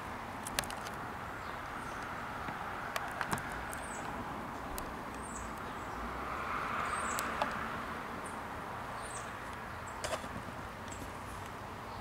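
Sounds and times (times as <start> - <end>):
distant road traffic: 0.0 - 12.0
small birds chirping: 0.3 - 12.0
vehicle passing: 1.2 - 9.9.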